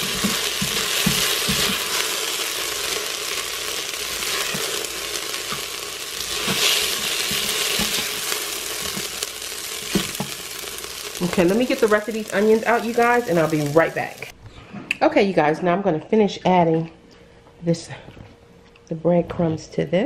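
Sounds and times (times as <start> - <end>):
spatula scraping and tapping pot: 0.0 - 2.0, 6.3 - 9.2
onions sizzling in hot oil: 0.0 - 14.3.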